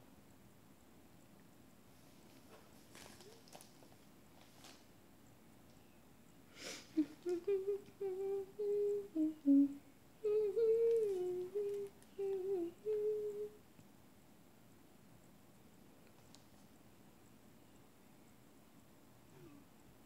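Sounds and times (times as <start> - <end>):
girl humming a tune: 6.6 - 13.6
breathy noise: 19.3 - 19.7.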